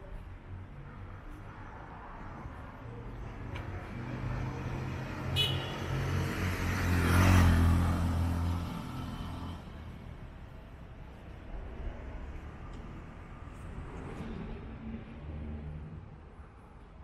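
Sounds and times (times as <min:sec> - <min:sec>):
vehicle engine passing: 0:03.8 - 0:10.0.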